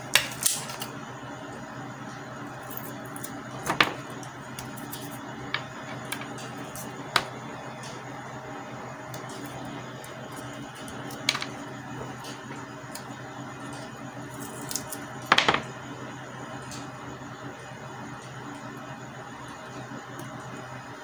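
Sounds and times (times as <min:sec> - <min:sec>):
steady low hum: 0:00.0 - 0:21.0
tape crackling as it is peeled: 0:13.7 - 0:15.1.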